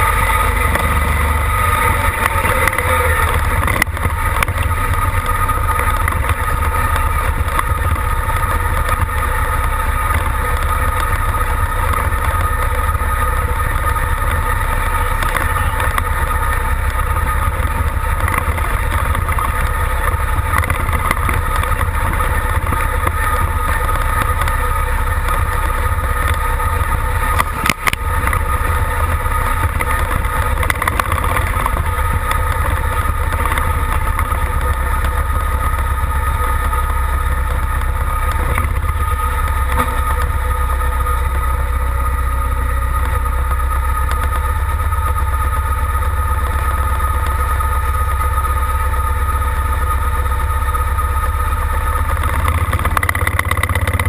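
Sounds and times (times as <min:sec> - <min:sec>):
engine idling with deep rumble: 0:00.0 - 0:54.0
steady whine: 0:00.0 - 0:54.0.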